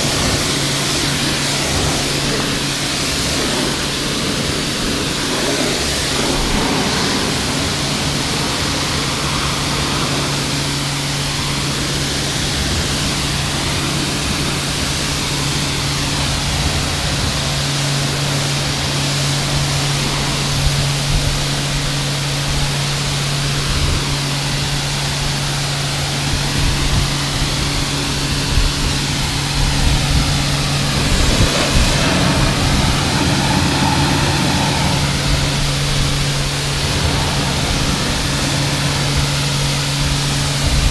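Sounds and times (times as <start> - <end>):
pressure washer humming: 0.0 - 40.9
water spray hissing on car: 0.0 - 40.9.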